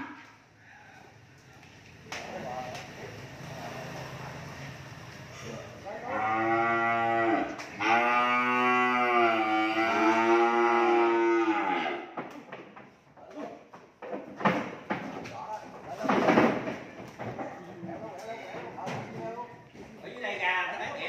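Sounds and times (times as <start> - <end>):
cow mooing: 6.0 - 12.1.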